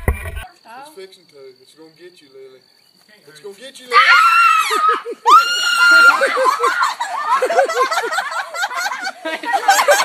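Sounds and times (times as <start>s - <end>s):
high-pitched scream: 3.9s - 7.0s
person laughing: 4.8s - 10.0s.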